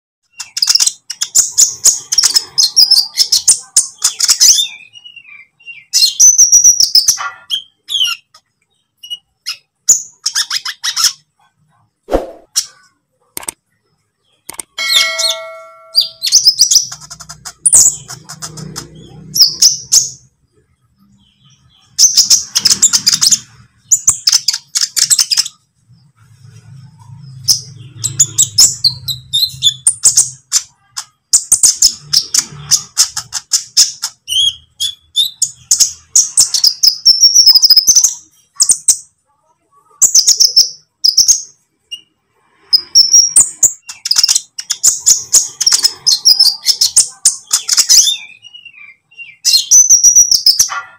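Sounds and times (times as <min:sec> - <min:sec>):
bird twittering: 0:14.3 - 0:20.3.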